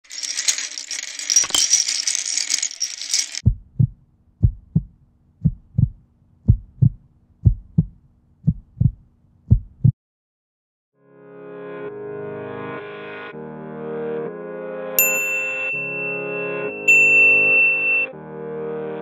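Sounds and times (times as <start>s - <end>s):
plastic bricks clattering: 0.0s - 3.4s
heartbeat thumps: 3.4s - 10.0s.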